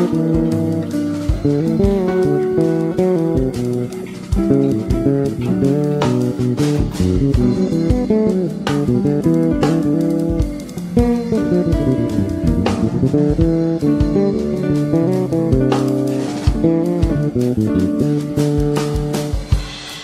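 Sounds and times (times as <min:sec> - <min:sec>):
bass: 0:00.0 - 0:20.0
plucked guitar: 0:00.0 - 0:20.0.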